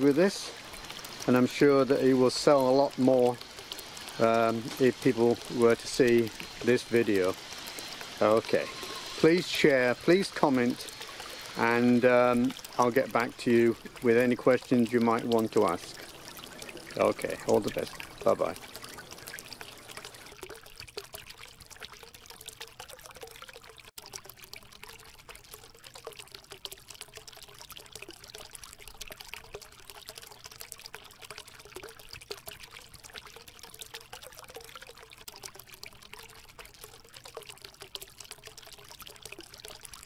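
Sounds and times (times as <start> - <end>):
faint pump hum: 0.0 - 40.0
fountain spray splashing on water: 0.0 - 40.0.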